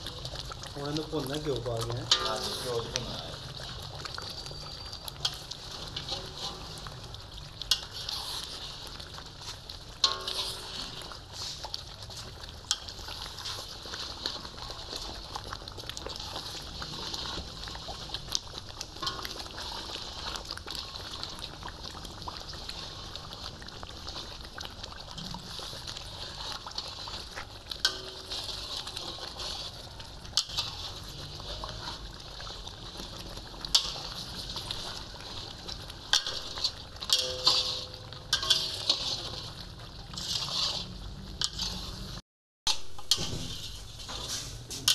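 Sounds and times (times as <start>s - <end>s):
mixture sizzling and bubbling: 0.0s - 44.9s
metal spatula scraping pan: 1.1s - 15.2s, 16.1s - 17.5s, 19.0s - 21.4s, 25.3s - 32.7s, 33.6s - 44.9s.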